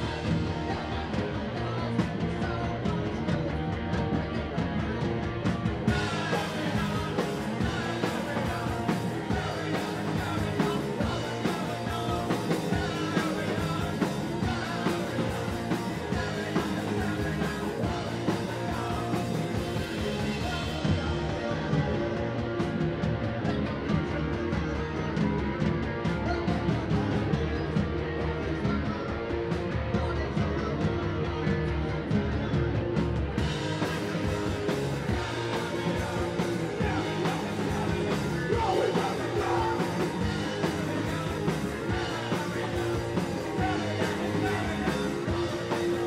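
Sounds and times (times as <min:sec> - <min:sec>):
drum kit with cymbals: 0:00.0 - 0:27.9, 0:32.1 - 0:46.0
electric guitar: 0:00.0 - 0:46.0
person singing: 0:05.9 - 0:22.7, 0:33.5 - 0:46.0.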